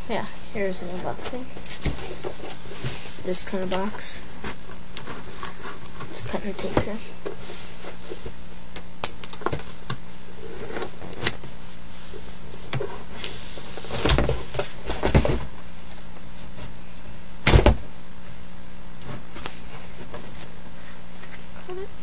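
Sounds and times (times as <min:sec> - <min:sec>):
faint hum: 0:00.0 - 0:22.0
cardboard box rustling: 0:00.6 - 0:08.6.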